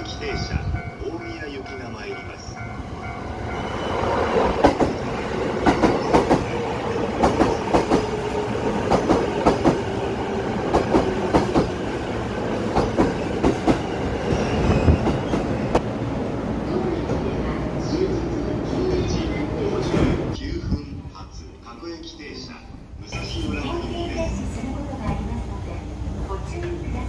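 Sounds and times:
train running rumble: 0.0 - 20.4
train wheels clacking on rails: 4.4 - 15.8.

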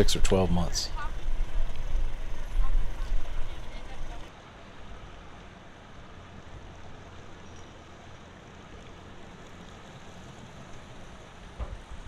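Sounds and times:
outboard motor idling: 0.0 - 4.3
outdoor hiss: 0.0 - 12.0.

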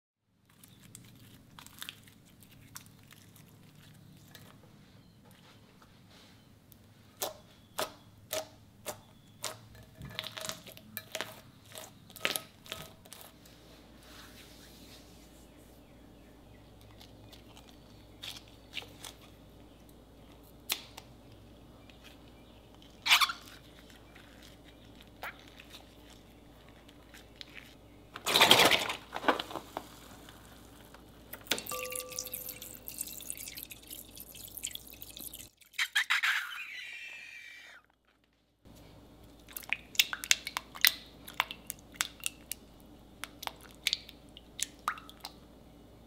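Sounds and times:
liquid splashing and trickling: 31.4 - 35.8.

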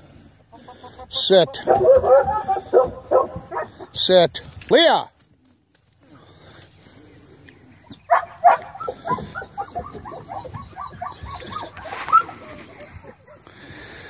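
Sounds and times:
dog whining and yelping: 1.7 - 3.7, 8.1 - 13.4.

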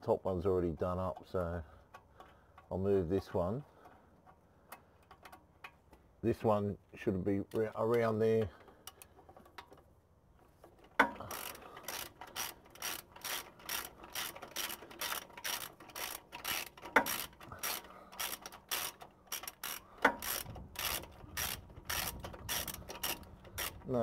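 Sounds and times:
ratchet wrench clicking: 10.9 - 24.0.

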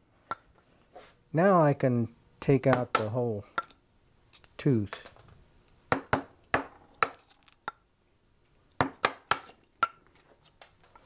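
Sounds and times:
wooden mallet striking chisel: 2.7 - 3.8, 5.9 - 7.8, 8.8 - 10.0.

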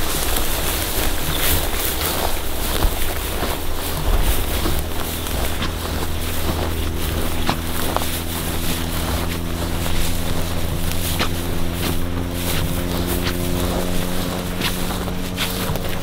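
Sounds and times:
footsteps through dry grass: 0.0 - 16.0
steady low hum: 0.0 - 16.0.

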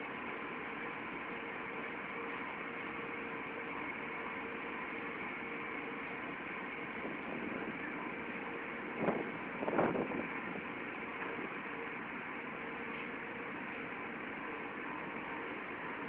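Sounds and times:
industrial machinery noise: 0.0 - 16.0.

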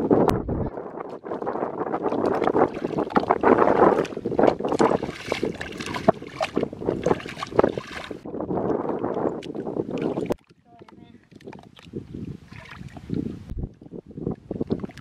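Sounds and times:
bare feet wading through mud: 1.2 - 8.2.

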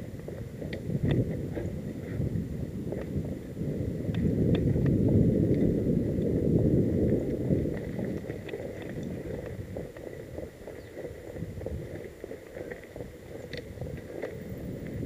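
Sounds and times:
bike tyres rumbling over dirt trail: 0.0 - 15.0
bike rattling clicks: 7.2 - 15.0.

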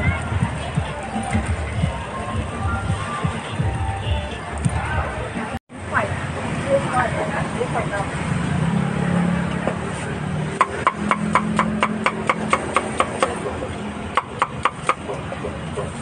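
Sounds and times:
cleaver chopping meat on wood: 10.6 - 13.4, 14.1 - 15.1.

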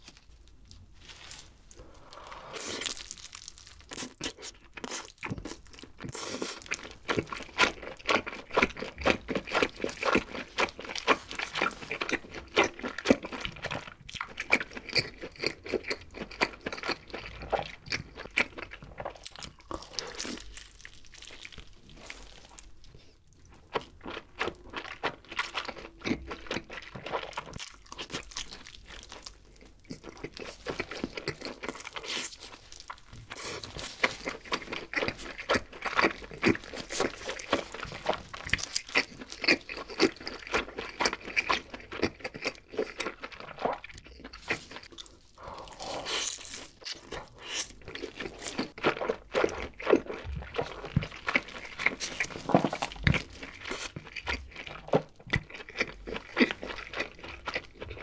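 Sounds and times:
chewing pizza: 0.0 - 58.0
crust crunching: 50.4 - 56.8.

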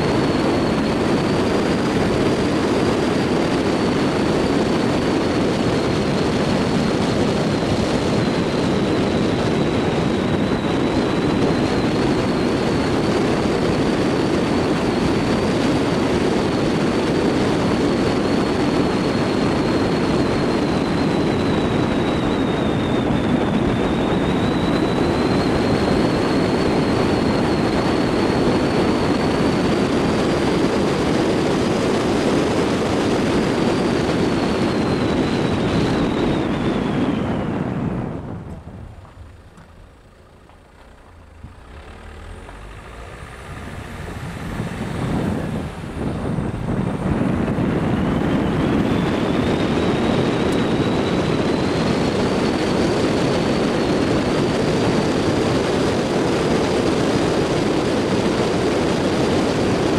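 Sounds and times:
car engine and tyre rumble: 0.0 - 59.9
thin high whine: 17.7 - 55.8.

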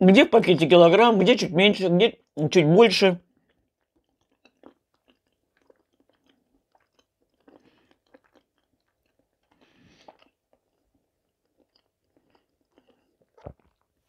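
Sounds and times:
chewing soft food: 3.2 - 14.0.

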